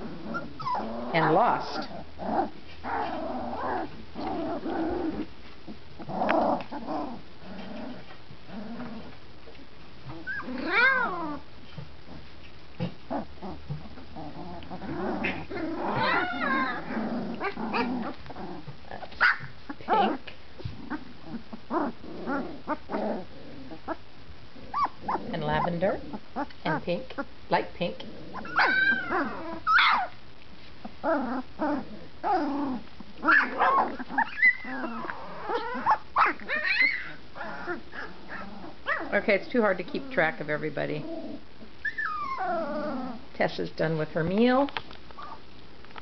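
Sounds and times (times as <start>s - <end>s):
puppy whining: 0.0s - 5.3s, 10.0s - 11.5s, 12.8s - 24.0s, 24.6s - 27.3s, 28.3s - 30.2s, 30.9s - 39.2s, 41.0s - 43.3s, 45.2s - 45.5s
puppies growling and yipping: 0.0s - 27.3s, 27.9s - 30.2s, 30.8s - 39.2s, 41.0s - 43.3s, 45.1s - 45.5s.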